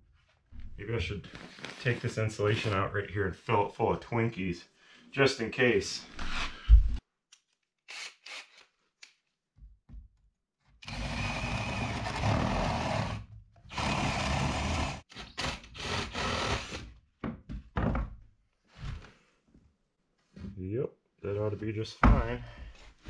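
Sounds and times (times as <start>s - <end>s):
cordless drill boring into wood: 10.8s - 16.9s.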